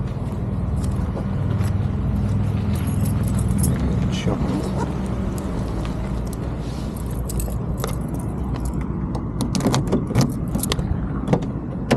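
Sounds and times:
keys jangling: 0:02.7 - 0:04.0, 0:06.2 - 0:08.9, 0:10.1 - 0:10.8.

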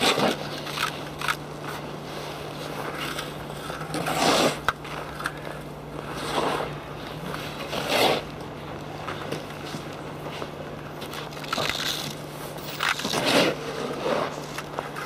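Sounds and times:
scraping on snowy ice: 0:00.0 - 0:01.0, 0:01.8 - 0:05.2, 0:06.0 - 0:08.3, 0:11.1 - 0:15.0.

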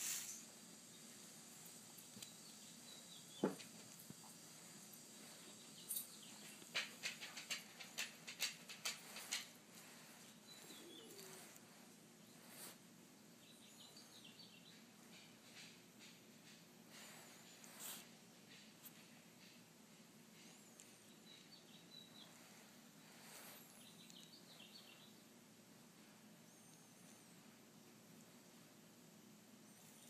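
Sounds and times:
faint high chirps: 0:10.0 - 0:12.8, 0:13.4 - 0:14.9.

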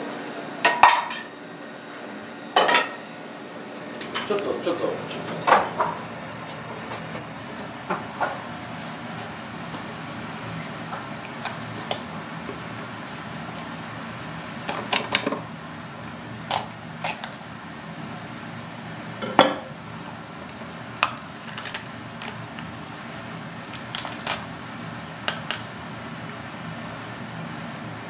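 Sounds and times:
knife cracking crab shell: 0:16.5 - 0:17.4, 0:21.0 - 0:22.7, 0:23.7 - 0:24.5.

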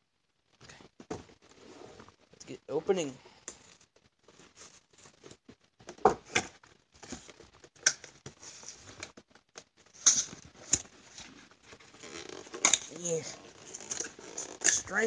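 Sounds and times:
cardboard rustling and scraping: 0:03.6 - 0:07.5, 0:08.2 - 0:09.2, 0:09.8 - 0:15.0.

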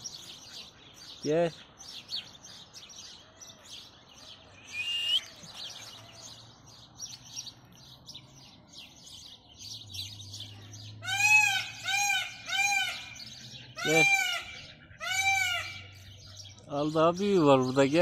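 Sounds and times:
small birds chirping: 0:00.0 - 0:18.0
short rising whistle: 0:04.7 - 0:05.3
loud animal calls: 0:10.8 - 0:16.2.

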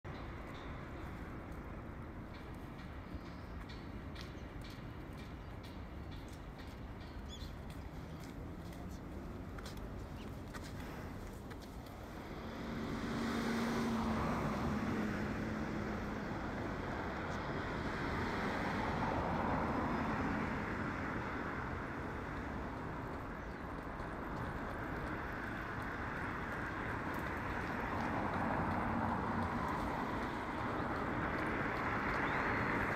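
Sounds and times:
distant road traffic: 0:00.0 - 0:32.9
low engine hum: 0:11.8 - 0:32.9.

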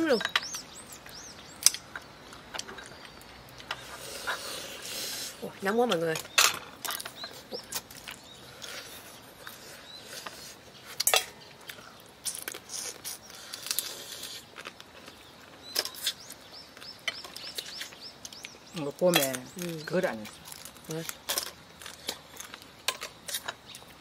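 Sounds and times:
sucking and chewing: 0:06.8 - 0:24.0.

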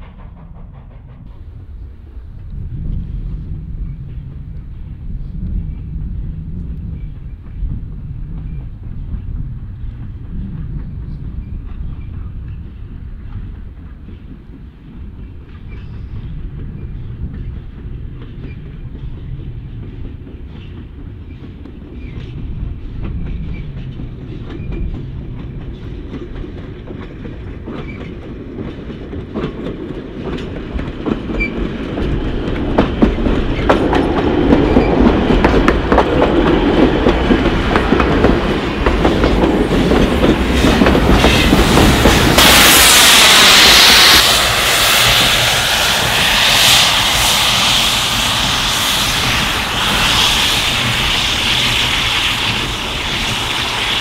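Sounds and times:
steam train rumble: 0:00.0 - 0:54.0
wheels clicking over rail joints: 0:16.6 - 0:42.7.

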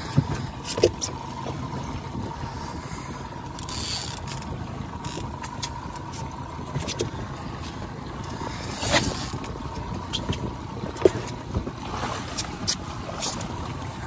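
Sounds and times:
outboard motor whining: 0:00.0 - 0:14.0
water splashing: 0:00.0 - 0:14.0.

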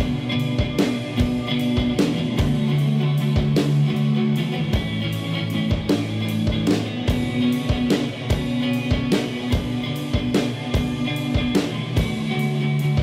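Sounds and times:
drums steady beat: 0:00.0 - 0:13.0
electric guitar sustained chords: 0:00.0 - 0:13.0.

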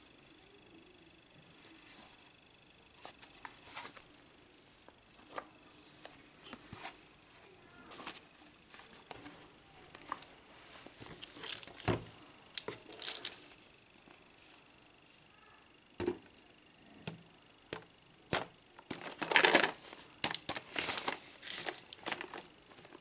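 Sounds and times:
packaging rustling and crinkling: 0:07.9 - 0:13.6, 0:18.3 - 0:23.0.

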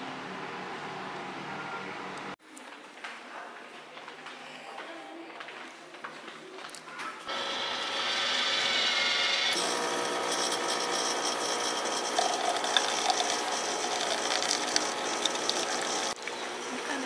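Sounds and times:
vending machine whirring: 0:07.3 - 0:17.0.

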